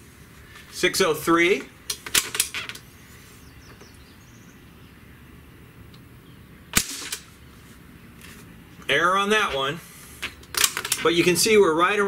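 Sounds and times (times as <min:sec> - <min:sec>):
air rifle firing pop: 0:06.7 - 0:07.3.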